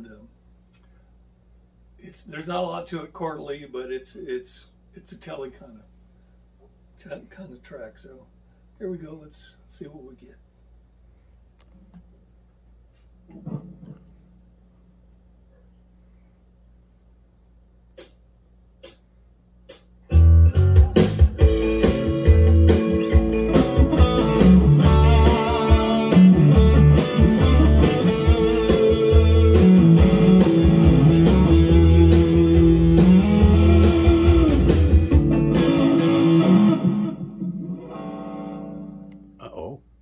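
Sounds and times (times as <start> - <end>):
country backing track drums and bass: 19.7 - 37.0
electric guitar playing: 20.1 - 39.4.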